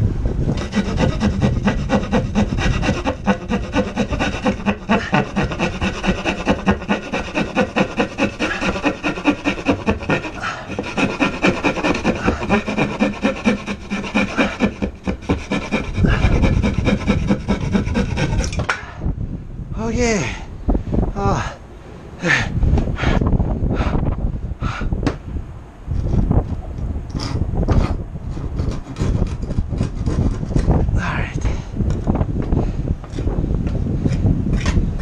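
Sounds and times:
hand saw cutting wood: 0.5s - 18.6s, 27.1s - 30.8s.

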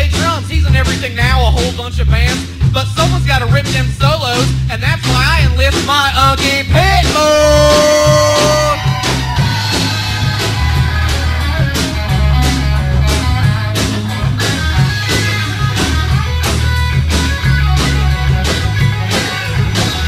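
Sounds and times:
bass guitar: 0.0s - 20.0s
drums: 0.0s - 20.0s
electric guitar solo: 7.4s - 20.0s.

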